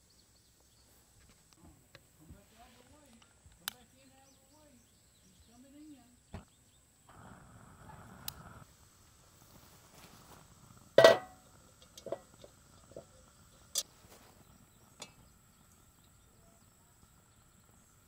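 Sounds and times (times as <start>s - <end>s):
loud metallic clank: 11.0s - 11.4s
light metal clinks and knocks: 11.0s - 13.9s.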